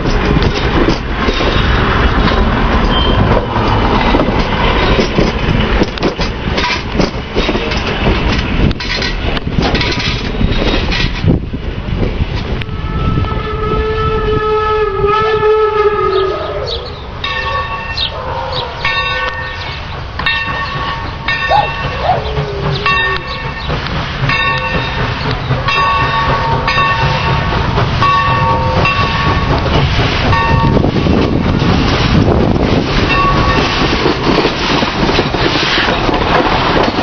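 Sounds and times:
train rumbling: 0.0s - 37.0s
steam locomotive whistle: 12.6s - 19.6s.

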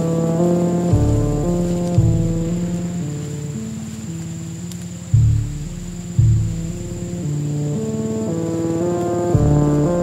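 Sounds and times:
sustained instrumental notes: 0.0s - 10.0s
deep bass note: 0.9s - 2.9s, 5.2s - 7.3s, 9.3s - 10.0s.

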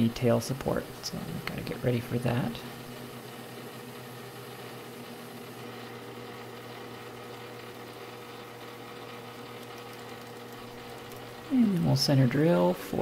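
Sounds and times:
metal lathe humming: 0.0s - 13.0s.

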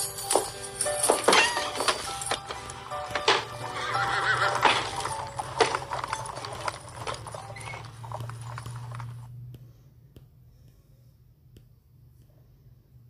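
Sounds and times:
horse hooves clip-clopping: 0.0s - 9.4s.

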